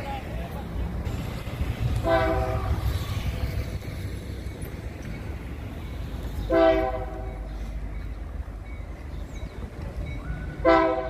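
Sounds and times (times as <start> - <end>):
locomotive air horn blasts: 2.0 - 2.9, 6.5 - 7.3, 10.6 - 11.0.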